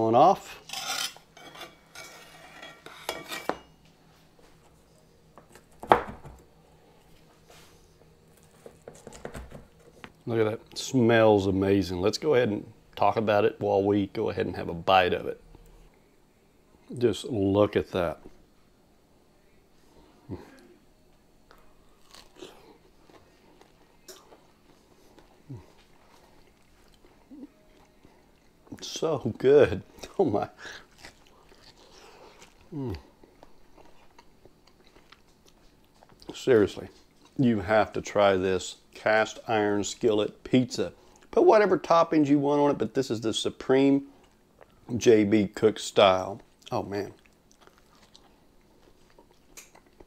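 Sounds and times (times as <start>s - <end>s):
spatula scraping under pizza: 0.6s - 3.5s
person chewing food: 21.5s - 28.8s, 30.0s - 36.3s, 46.4s - 50.0s.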